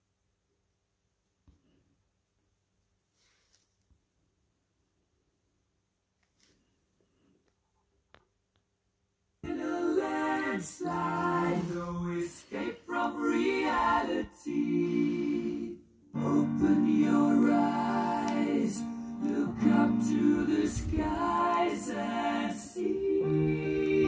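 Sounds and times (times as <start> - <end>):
music with singing from vinyl: 9.4 - 24.0.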